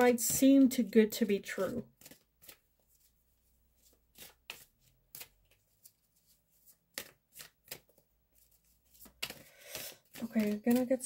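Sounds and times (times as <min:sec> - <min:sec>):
cards flicked and tapped: 0:01.8 - 0:02.6, 0:04.1 - 0:05.8, 0:06.9 - 0:11.0.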